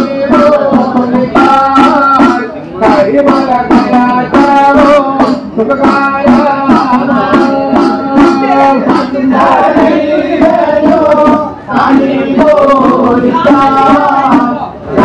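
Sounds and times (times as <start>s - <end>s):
drum strokes: 0.0s - 15.0s
man singing devotional song: 0.0s - 15.0s.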